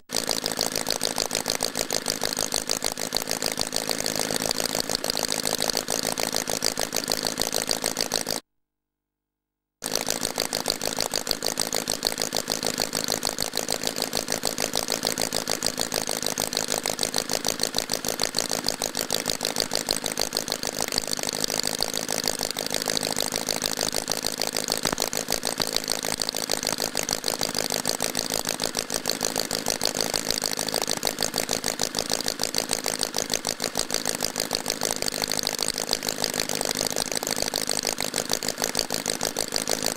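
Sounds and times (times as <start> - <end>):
model engine running: 0.0 - 8.4, 9.8 - 39.9.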